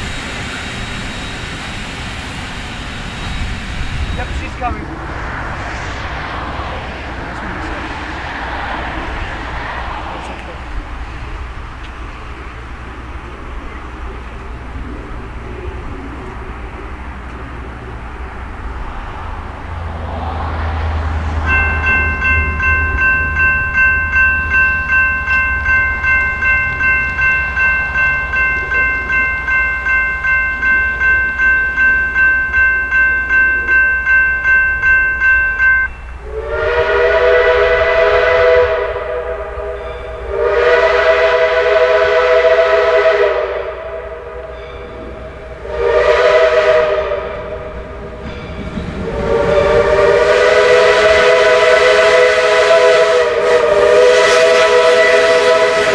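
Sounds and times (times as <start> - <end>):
railroad crossing bell ringing: 20.9 - 55.9
steam whistle blasts: 36.2 - 44.6, 45.6 - 47.8, 49.0 - 55.9.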